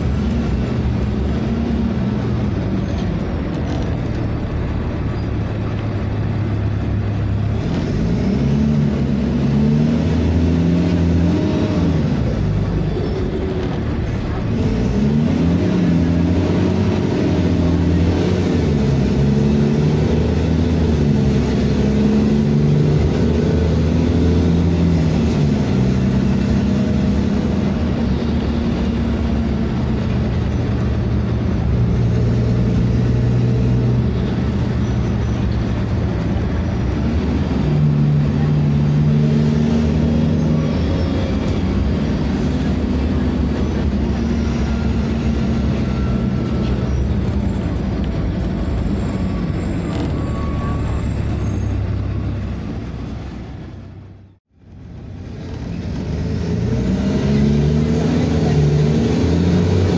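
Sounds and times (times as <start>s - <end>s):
bus diesel engine revving: 0.0s - 59.9s.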